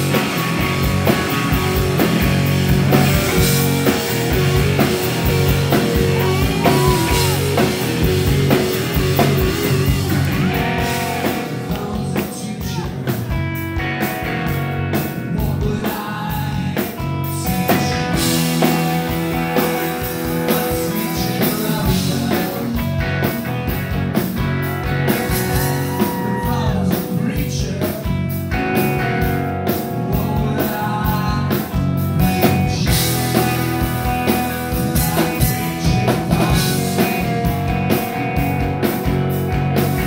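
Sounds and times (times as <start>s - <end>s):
bass guitar: 0.0s - 40.0s
drum kit: 0.0s - 40.0s
electric guitar: 0.0s - 40.0s
person singing: 4.3s - 13.5s, 14.9s - 23.0s, 25.2s - 28.4s, 29.8s - 37.5s.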